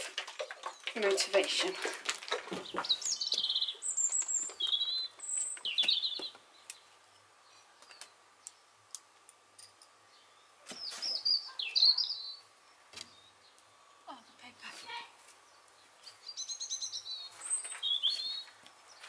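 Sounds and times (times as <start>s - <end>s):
songbird trilling: 2.8s - 6.8s, 10.2s - 12.5s, 16.1s - 19.0s.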